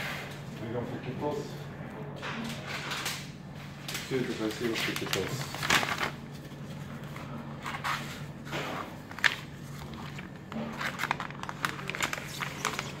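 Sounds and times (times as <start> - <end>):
plastic bag rustling and crinkling: 4.0 - 13.0.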